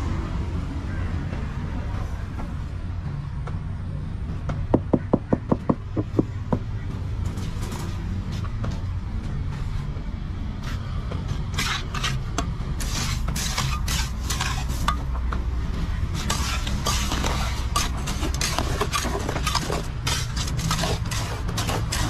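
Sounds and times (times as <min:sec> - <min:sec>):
trowel scraping wet concrete: 0:11.4 - 0:15.0, 0:16.1 - 0:22.0.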